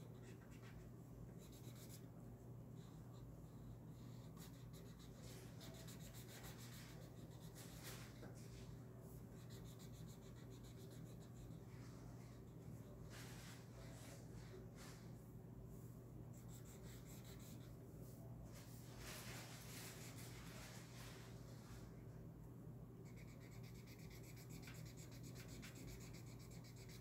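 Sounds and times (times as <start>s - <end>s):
steady low hum: 0.0s - 27.0s
marker scratching on paper: 1.4s - 2.0s, 2.8s - 8.2s, 16.4s - 17.7s, 23.1s - 27.0s.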